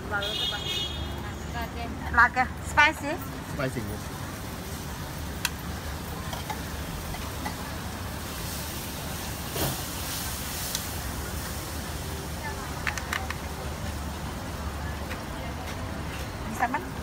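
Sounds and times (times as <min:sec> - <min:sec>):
low rumble of street noise: 0:00.0 - 0:17.0
food sizzling on a griddle: 0:03.4 - 0:15.0.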